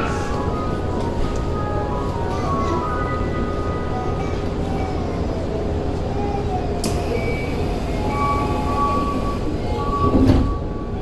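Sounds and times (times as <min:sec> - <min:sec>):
train low hum: 0:00.0 - 0:11.0
door-closing warning beeps: 0:06.8 - 0:11.0.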